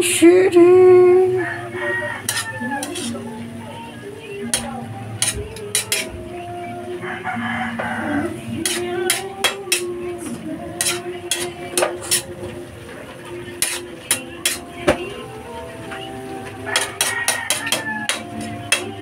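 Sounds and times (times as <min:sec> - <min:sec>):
spatula scraping metal wok: 0:01.6 - 0:19.0
background tune: 0:09.9 - 0:19.0.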